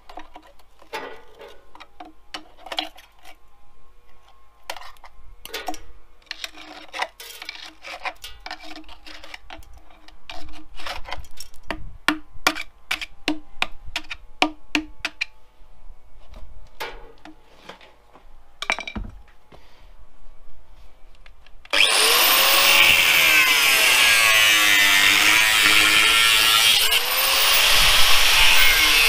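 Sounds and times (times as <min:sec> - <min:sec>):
hand tool scraping steel: 0:05.6 - 0:11.4, 0:21.7 - 0:29.0.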